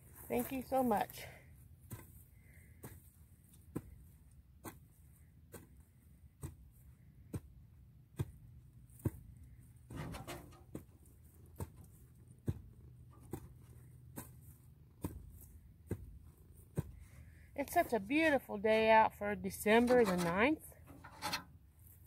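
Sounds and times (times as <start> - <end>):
scraping rustle: 9.9 - 10.9, 19.5 - 22.0.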